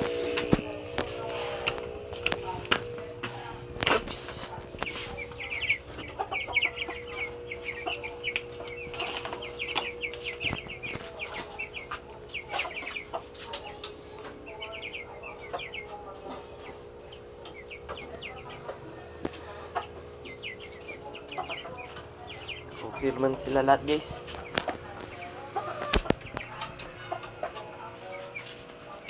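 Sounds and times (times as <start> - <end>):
clicks: 0.0 - 5.0
low hum: 0.0 - 28.2
chickens chirping: 0.0 - 29.0.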